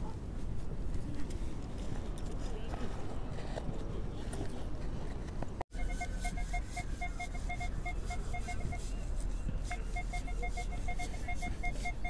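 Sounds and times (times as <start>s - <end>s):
metal detector short beeps: 5.8s - 9.0s, 9.7s - 12.0s.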